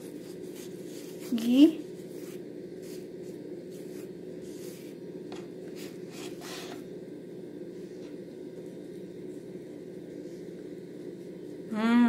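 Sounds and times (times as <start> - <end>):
brush swishes on pancake: 0.0 - 6.8.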